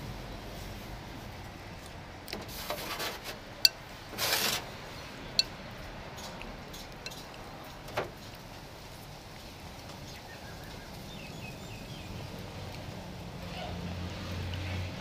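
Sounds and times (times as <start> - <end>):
short rustle: 4.1 - 4.7.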